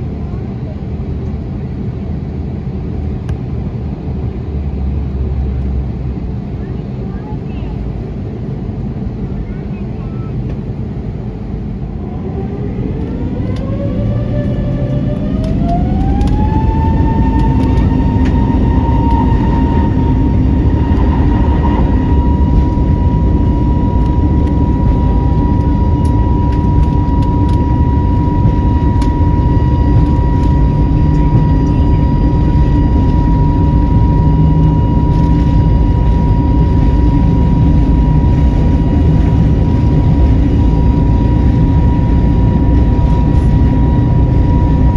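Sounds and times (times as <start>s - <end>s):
aircraft rumble on runway: 0.0s - 44.9s
jet engines spooling up: 10.2s - 44.9s.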